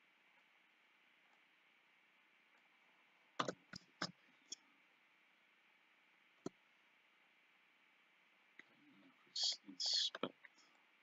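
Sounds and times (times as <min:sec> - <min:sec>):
faint steady hiss: 0:00.0 - 0:11.0
mouse and keyboard clicks: 0:03.4 - 0:04.2.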